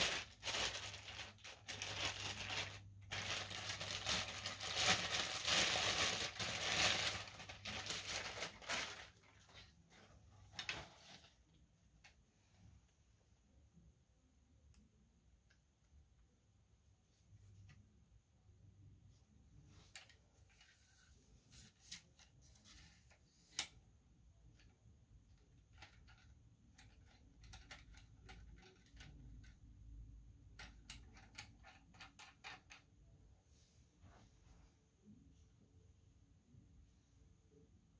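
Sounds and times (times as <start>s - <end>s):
plastic bag crinkling: 0.0s - 9.7s.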